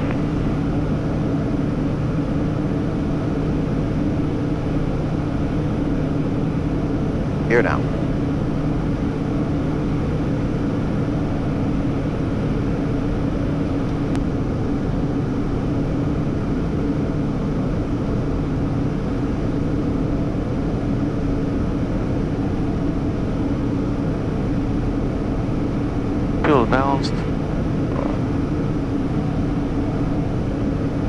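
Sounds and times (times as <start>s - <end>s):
low steady hum: 0.0s - 16.4s, 26.2s - 31.0s
jet engines droning: 0.0s - 31.0s.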